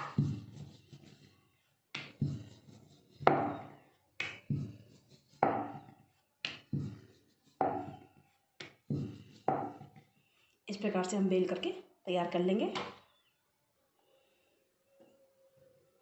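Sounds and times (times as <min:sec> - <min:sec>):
rolling pin knocking on marble: 0:05.4 - 0:07.0, 0:08.6 - 0:10.0.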